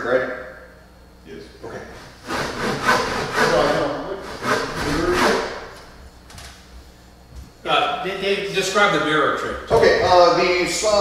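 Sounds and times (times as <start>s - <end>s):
hand saw cutting wood: 2.0s - 5.8s.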